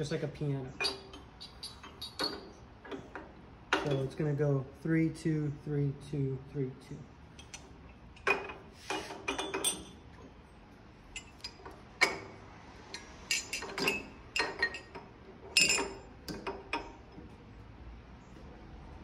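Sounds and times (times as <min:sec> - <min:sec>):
metal bars clinking: 0:00.8 - 0:04.2, 0:07.4 - 0:10.1, 0:11.1 - 0:17.2.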